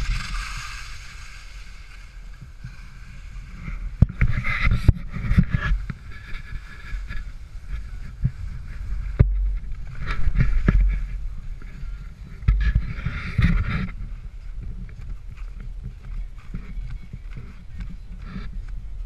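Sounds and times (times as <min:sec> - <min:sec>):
skis scraping over snow: 0:00.0 - 0:19.0
wind rumbling on microphone: 0:00.0 - 0:19.0.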